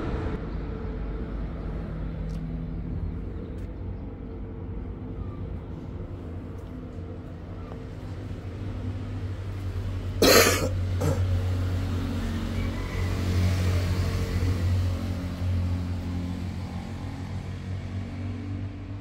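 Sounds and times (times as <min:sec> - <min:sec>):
low motor hum: 0:00.0 - 0:19.0.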